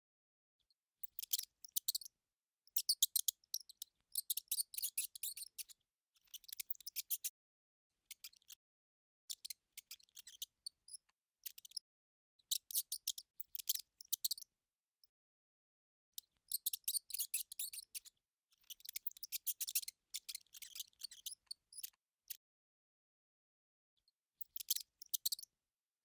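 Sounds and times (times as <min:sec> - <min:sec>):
mouse scratchy clicking and squeaking: 0:01.0 - 0:02.1, 0:02.7 - 0:07.4, 0:08.0 - 0:08.6, 0:09.3 - 0:14.5, 0:16.2 - 0:22.4, 0:24.0 - 0:25.5.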